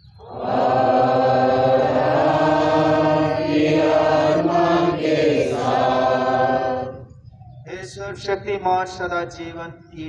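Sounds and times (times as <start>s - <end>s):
congregation and choir chanting: 0.0s - 7.2s.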